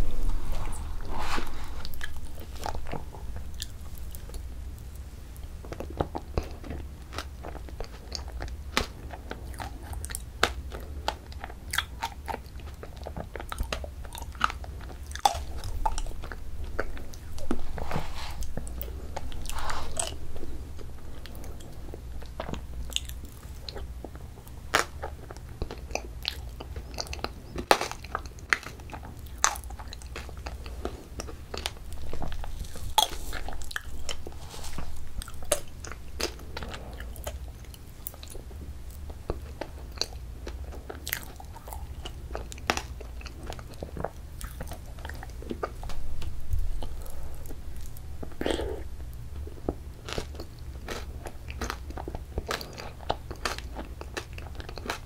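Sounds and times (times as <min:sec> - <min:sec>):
plastic spoon scraping paper tub: 0:17.5 - 0:18.7.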